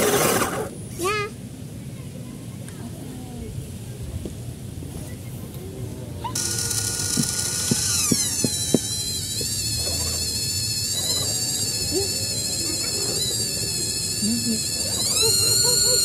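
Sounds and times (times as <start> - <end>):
electric motor whining: 6.4 - 16.0.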